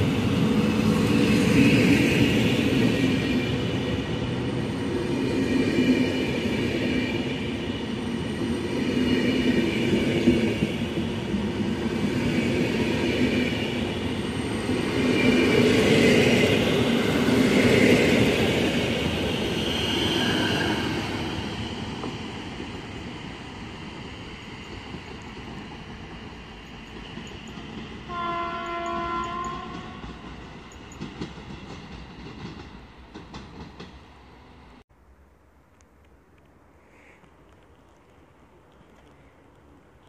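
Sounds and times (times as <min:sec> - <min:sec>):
train wheels rumbling on rails: 0:00.0 - 0:34.8.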